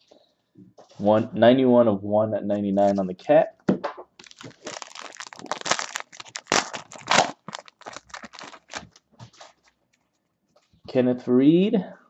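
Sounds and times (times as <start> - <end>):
foil wrapper crinkling: 4.2 - 9.6.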